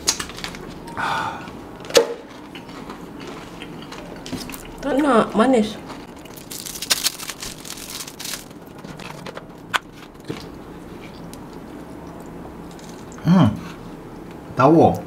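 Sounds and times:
plastic wrapper crinkling and tearing: 6.0s - 9.2s.

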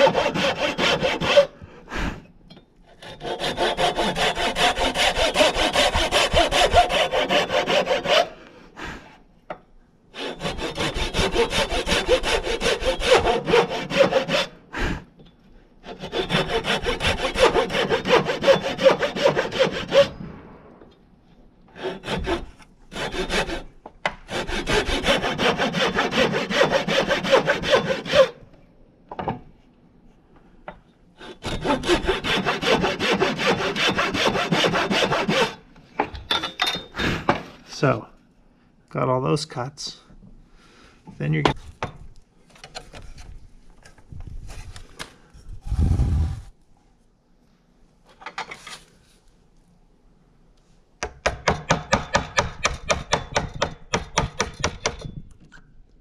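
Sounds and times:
hand saw cutting wood: 0.0s - 1.6s, 2.9s - 8.4s, 10.1s - 14.9s, 15.8s - 20.2s, 21.7s - 28.4s, 31.2s - 35.6s.

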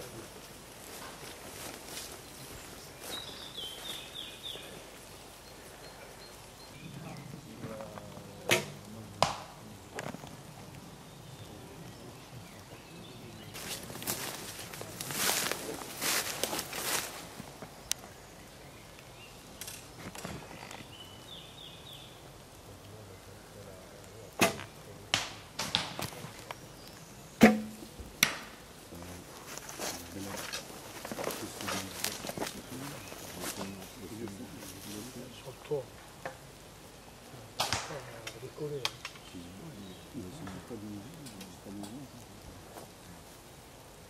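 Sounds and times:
rustling: 0.0s - 21.5s, 22.4s - 44.0s
arrow striking target: 8.5s - 9.6s, 24.4s - 26.0s, 27.4s - 28.5s, 37.6s - 38.0s
bowstring cracks and arrow strikes: 24.4s - 26.1s
low bowstring twang: 27.4s - 28.4s.

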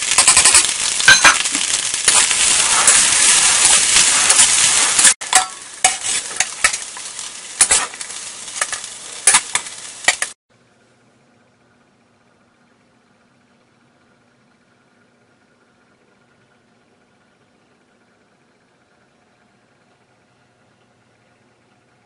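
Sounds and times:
spatula scraping: 0.0s - 10.3s
rice sizzling in wok: 0.0s - 10.4s
metal spatula clinking on wok: 5.3s - 6.8s.

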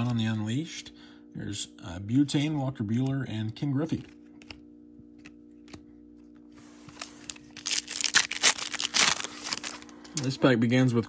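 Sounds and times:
foil wrapper crackling: 7.2s - 10.0s.

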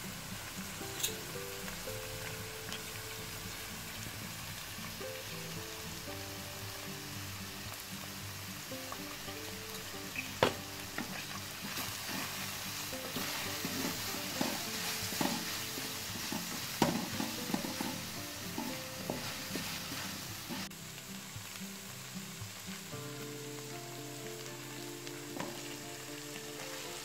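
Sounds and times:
meat sizzling in a pan: 0.0s - 27.0s
wooden spoon scraping a pan: 10.2s - 20.7s
spoon knocking against pan: 10.4s - 11.1s.

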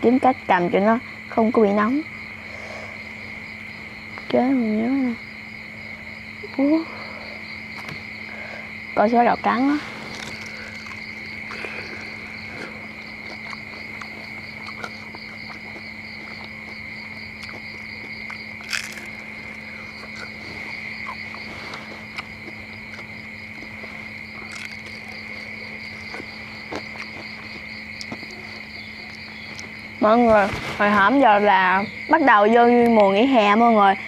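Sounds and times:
crickets chirping: 0.0s - 34.0s
crunchy food being chewed: 9.7s - 31.0s.

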